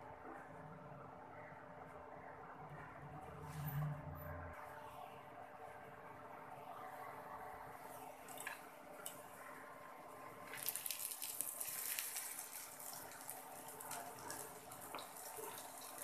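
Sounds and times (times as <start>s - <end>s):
fritters sizzling in hot oil: 10.2s - 16.0s.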